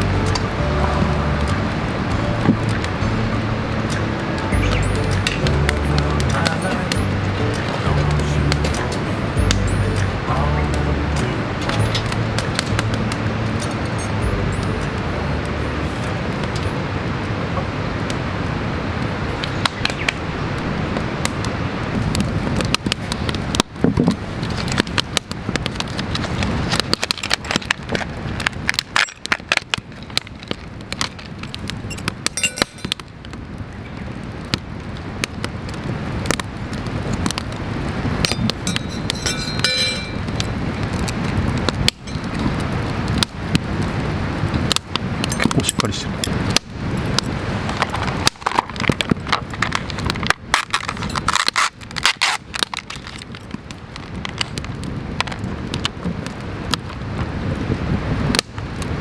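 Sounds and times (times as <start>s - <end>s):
campfire crackling: 0.0s - 59.0s
metal utensils clicking: 32.4s - 33.0s, 38.3s - 40.2s.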